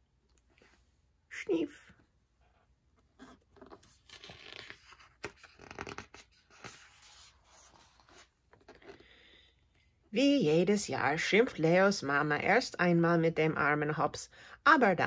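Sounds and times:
paper page rustling: 0:03.2 - 0:09.1.

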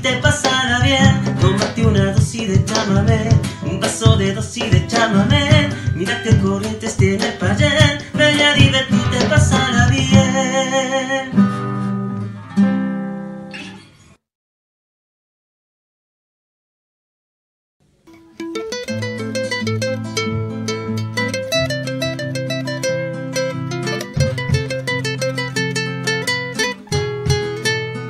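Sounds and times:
cajon beats: 0:00.0 - 0:12.0, 0:18.2 - 0:28.0
acoustic guitar strumming: 0:00.0 - 0:14.0, 0:18.0 - 0:28.0.

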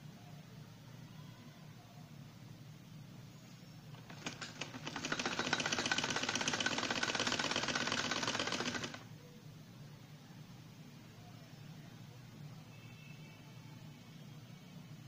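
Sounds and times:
sewing machine stitching: 0:04.0 - 0:09.1.

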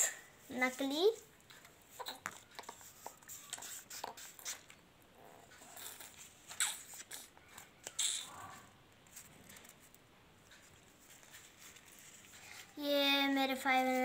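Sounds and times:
paper banknotes rustling: 0:11.0 - 0:12.7.

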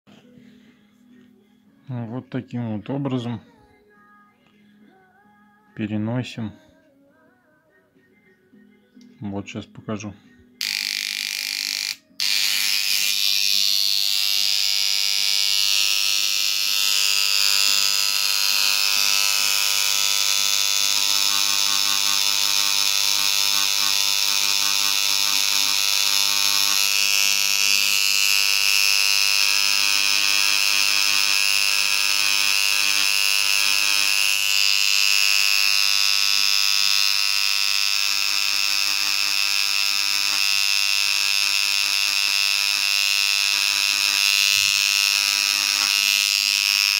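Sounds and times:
engraving pen buzzing on stone: 0:10.6 - 0:46.9.

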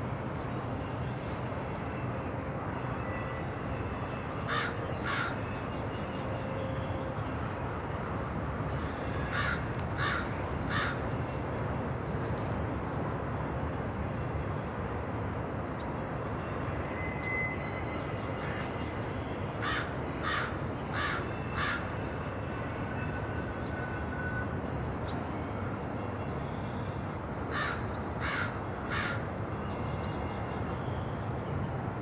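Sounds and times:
crow cawing: 0:04.5 - 0:05.3, 0:09.3 - 0:11.0, 0:19.6 - 0:21.8, 0:27.5 - 0:29.2.

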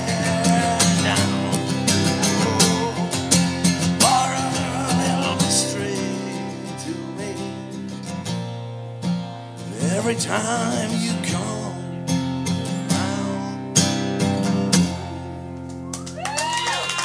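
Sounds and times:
wordless vocal line: 0:00.0 - 0:07.9, 0:09.6 - 0:12.0
acoustic guitar strumming: 0:00.0 - 0:15.9.

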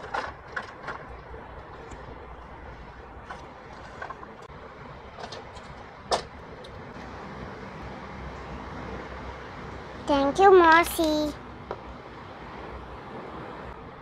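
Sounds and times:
steady background hum: 0:00.0 - 0:14.0.

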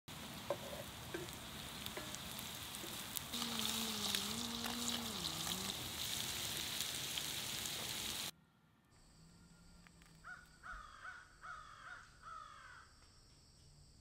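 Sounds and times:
meat sizzling in a skillet: 0:00.1 - 0:08.3.

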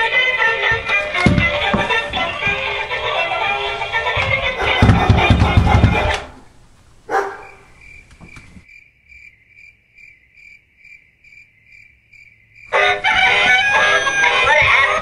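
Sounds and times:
music: 0:00.0 - 0:04.6, 0:12.8 - 0:15.0
cricket chirping: 0:07.1 - 0:13.0.

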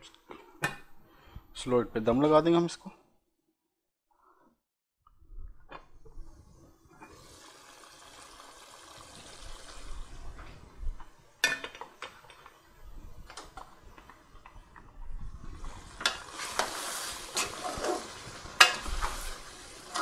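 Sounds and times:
gravy simmering with a hiss: 0:06.0 - 0:20.0.

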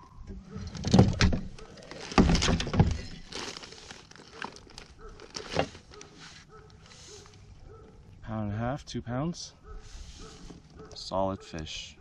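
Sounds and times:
knocks and thumps of fish in net: 0:00.6 - 0:05.8.

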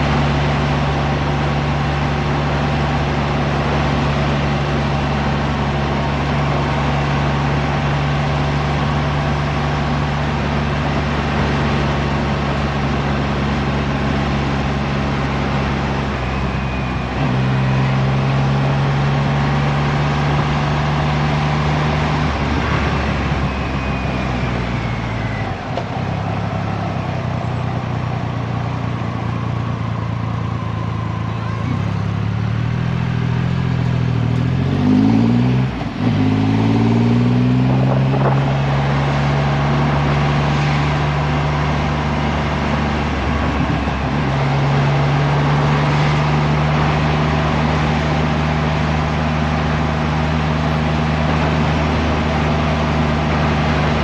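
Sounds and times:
wind rush: 0:37.6 - 0:38.9.

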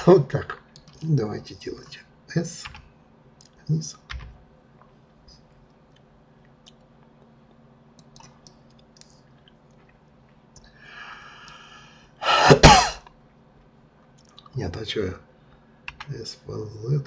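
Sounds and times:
computer keyboard and mouse clicks: 0:00.5 - 0:01.1, 0:02.6 - 0:04.4, 0:08.0 - 0:09.9, 0:15.9 - 0:16.1.

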